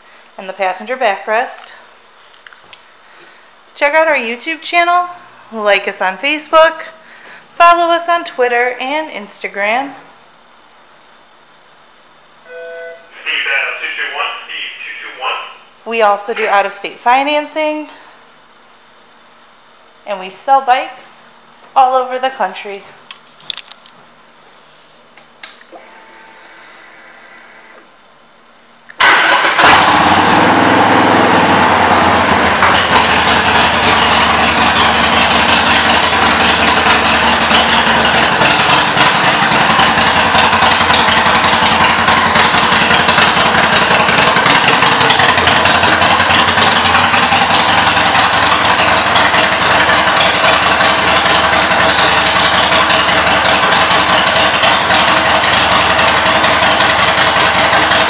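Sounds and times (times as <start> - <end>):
motorcycle engine idling: 29.1 - 58.0.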